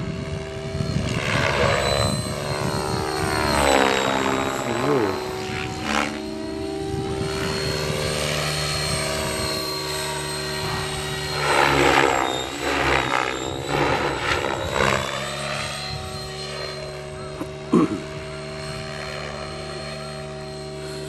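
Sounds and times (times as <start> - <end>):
rc helicopter motor whine: 0.0 - 21.0
rotor blades swishing: 0.8 - 17.1.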